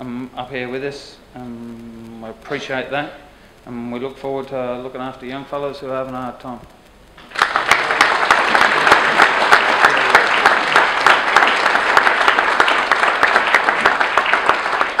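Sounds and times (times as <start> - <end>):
audience applauding: 7.2 - 15.0.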